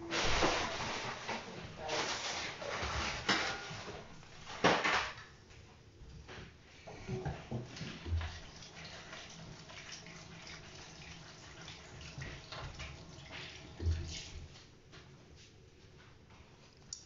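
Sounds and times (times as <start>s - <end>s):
water bubbling in saucepan: 7.1s - 14.6s.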